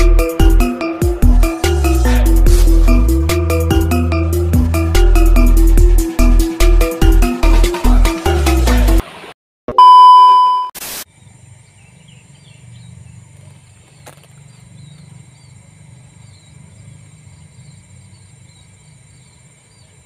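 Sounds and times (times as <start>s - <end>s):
test-card beep: 9.7s - 10.8s
burst of static: 10.8s - 11.1s
high insect buzz: 10.9s - 20.0s.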